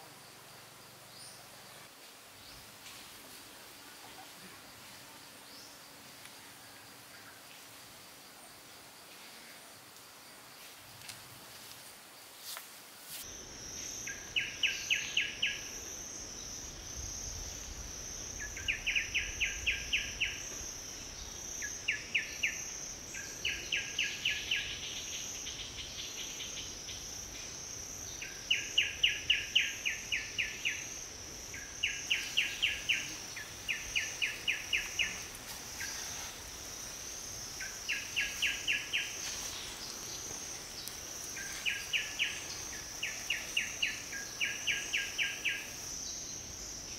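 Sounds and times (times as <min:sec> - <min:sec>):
insects buzzing drone: 0:00.0 - 0:46.9
insect ticking trills: 0:13.2 - 0:46.9.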